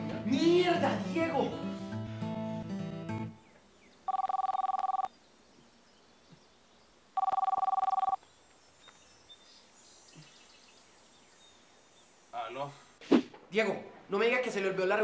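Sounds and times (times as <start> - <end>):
mobile phone ringing: 4.1 - 5.1, 7.2 - 8.2.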